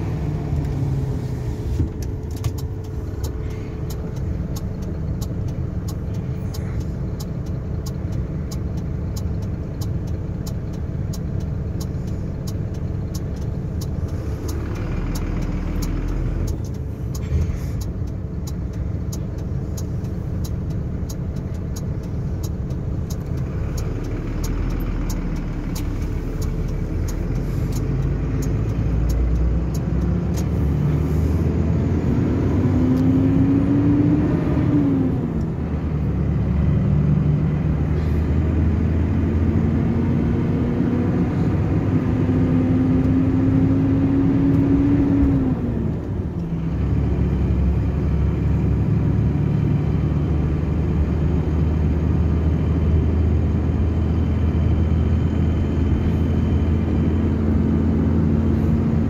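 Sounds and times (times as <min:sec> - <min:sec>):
truck engine and road rumble: 0:00.0 - 0:59.0
faint ticks: 0:02.6 - 0:30.5.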